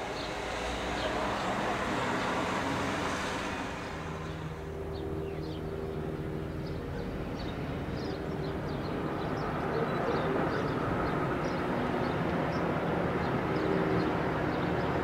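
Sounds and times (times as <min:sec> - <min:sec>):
steady low hum: 0:00.0 - 0:08.2
electric train rumble: 0:00.0 - 0:15.0.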